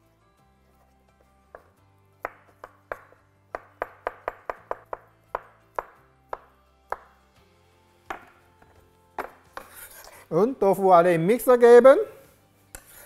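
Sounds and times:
faint background music: 0:00.0 - 0:13.0
knife chopping on cutting board: 0:01.5 - 0:07.2, 0:09.2 - 0:09.9.

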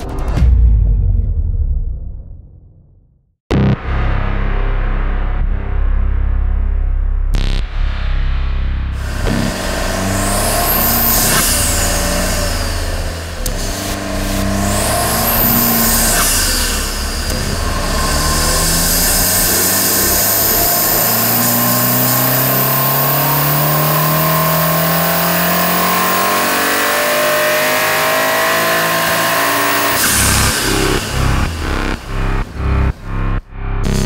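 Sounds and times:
high turbo whine: 0:03.5 - 0:34.0
turbocharged engine revving: 0:07.3 - 0:34.0.

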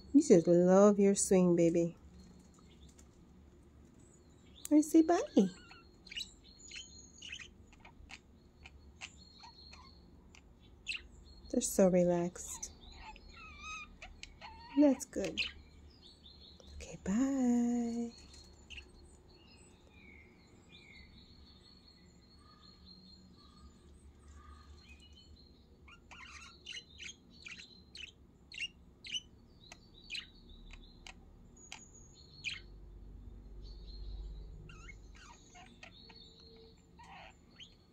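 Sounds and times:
budgerigars chirping: 0:04.9 - 0:16.2, 0:25.8 - 0:32.7, 0:33.6 - 0:37.9.

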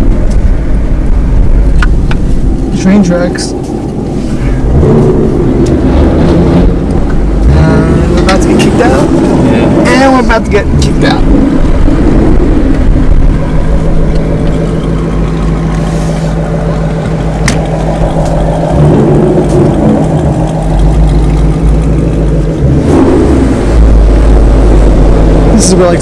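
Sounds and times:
car engine rumble from inside: 0:00.0 - 0:26.0.

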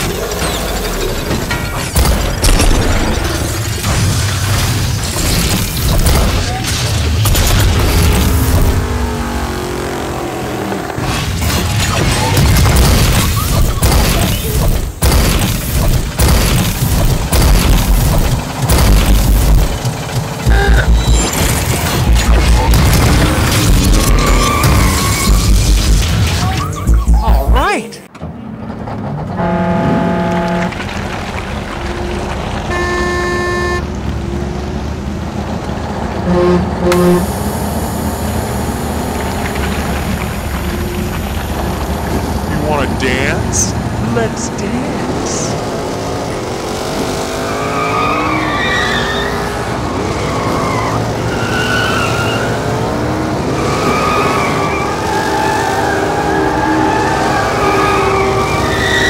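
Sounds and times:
horn honks: 0:29.3 - 0:30.8, 0:32.7 - 0:33.9, 0:36.2 - 0:37.3.

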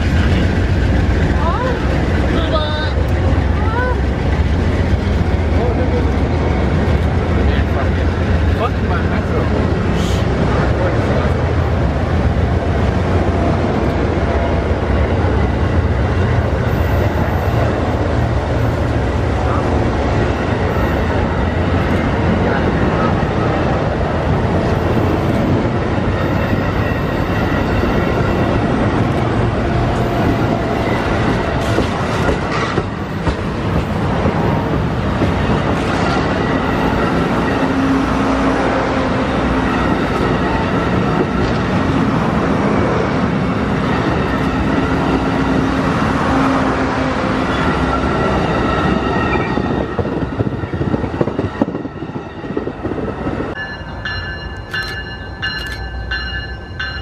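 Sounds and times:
train wheels rumbling on rail: 0:00.0 - 0:57.0
wheels clacking over rail joints: 0:25.4 - 0:38.0.

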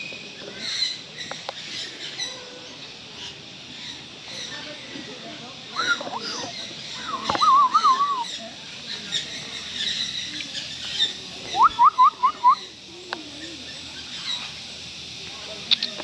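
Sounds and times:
birds chirping: 0:00.0 - 0:16.0
loud whistles: 0:07.0 - 0:08.3, 0:11.6 - 0:12.7.

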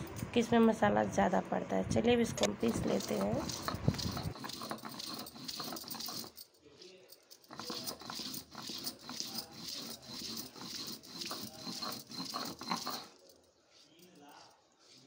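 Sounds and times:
stone roller grinding spices: 0:02.5 - 0:06.4, 0:07.3 - 0:15.0.

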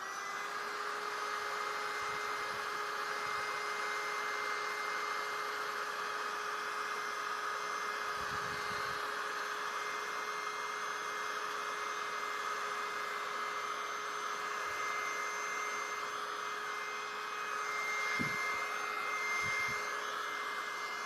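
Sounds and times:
vacuum cleaner motor whine: 0:00.0 - 0:21.0.

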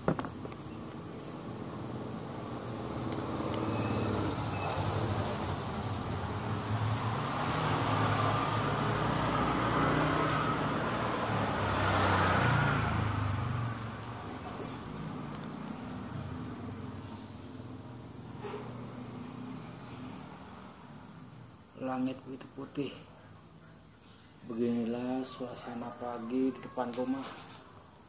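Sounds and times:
high insect buzz: 0:00.0 - 0:21.8
vehicle passing by: 0:01.0 - 0:21.5.

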